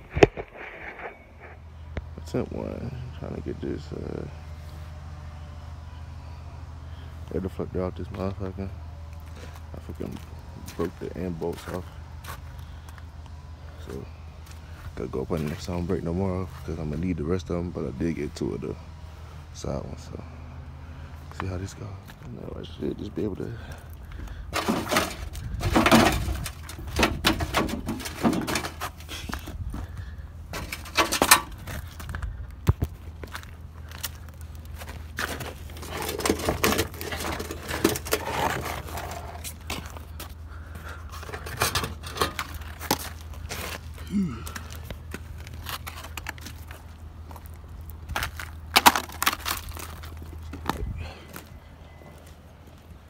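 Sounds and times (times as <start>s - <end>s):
knocks and scrapes on metal bumper: 24.5s - 29.5s, 30.5s - 31.8s, 35.2s - 39.8s
crunching on icy snow: 42.5s - 51.4s.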